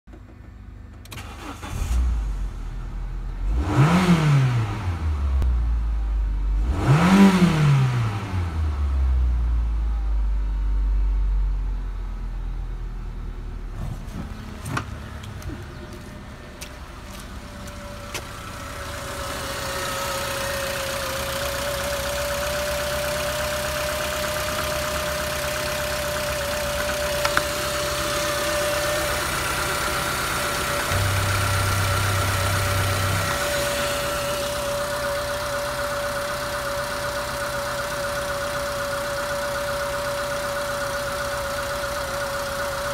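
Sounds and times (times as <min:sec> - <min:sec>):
car engine revving and idling: 0:00.1 - 0:42.9
engine whine: 0:00.1 - 0:42.9.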